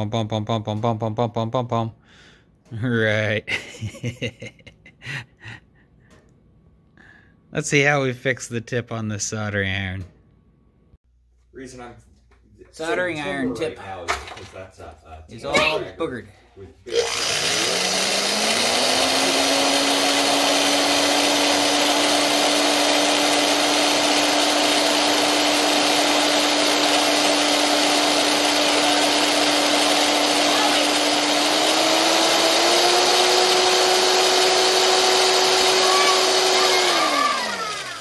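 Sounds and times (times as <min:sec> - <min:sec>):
electric drill running: 0:16.9 - 0:38.0.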